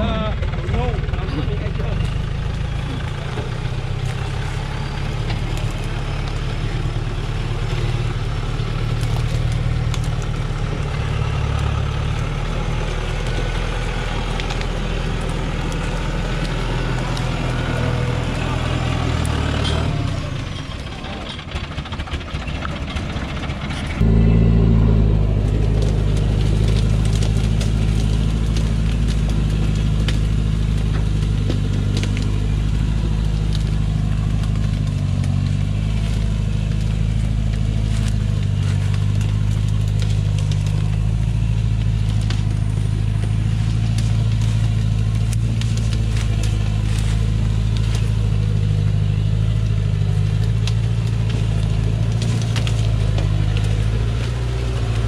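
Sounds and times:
diesel truck engine labouring: 0:00.0 - 0:55.0
short clicks and crackles: 0:25.4 - 0:55.0.

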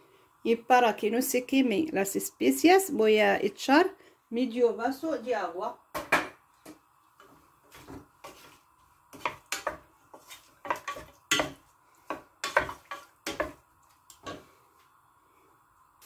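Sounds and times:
wooden spoon scraping a pot: 0:07.2 - 0:13.6.

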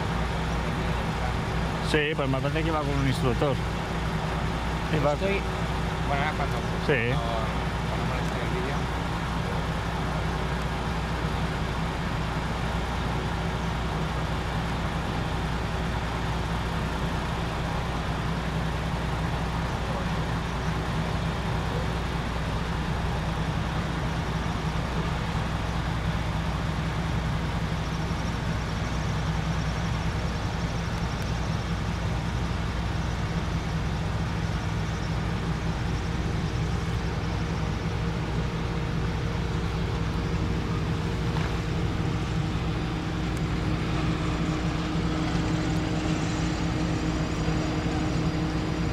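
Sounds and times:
engine drone: 0:00.0 - 0:48.9
faint steady tones: 0:00.0 - 0:48.9
low rumble: 0:29.9 - 0:48.9.

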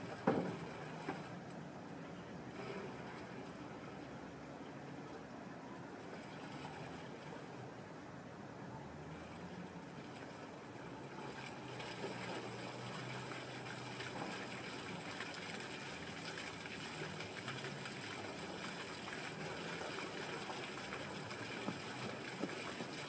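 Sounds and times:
fountain water splashing: 0:00.0 - 0:01.4, 0:09.1 - 0:23.0.

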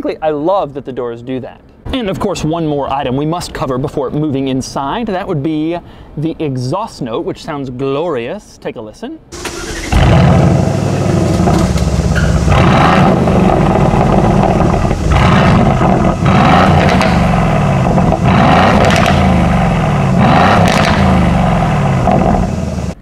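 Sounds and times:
car engine revving: 0:09.4 - 0:23.0.

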